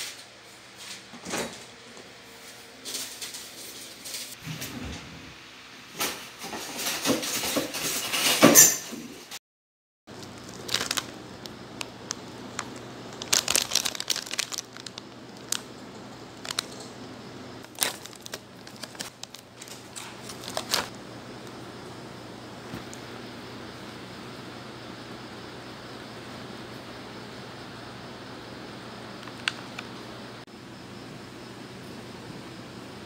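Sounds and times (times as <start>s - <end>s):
plastic packet crinkling: 10.1s - 16.9s, 17.6s - 20.9s.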